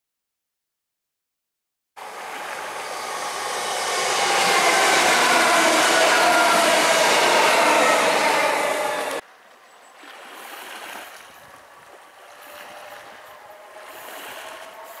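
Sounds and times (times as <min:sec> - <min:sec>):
electric train running past: 0:02.0 - 0:09.2, 0:12.1 - 0:15.0
train whine falling in pitch: 0:02.0 - 0:09.2
wheel-on-rail noise: 0:02.0 - 0:15.0.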